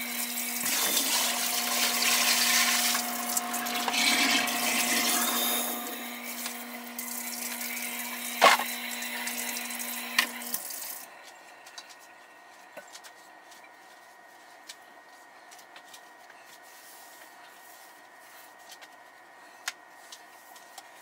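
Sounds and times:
steady low hum: 0.0s - 21.0s
tap water running into sink: 0.5s - 5.1s.

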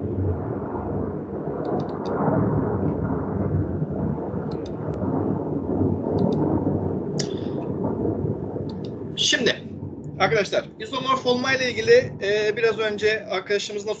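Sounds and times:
low rumbling noise: 0.0s - 14.0s
speech: 9.2s - 9.6s, 10.2s - 14.0s.

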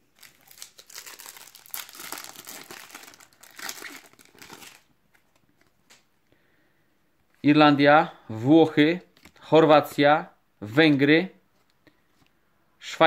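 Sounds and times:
foil wrapper crackling: 0.0s - 4.9s.

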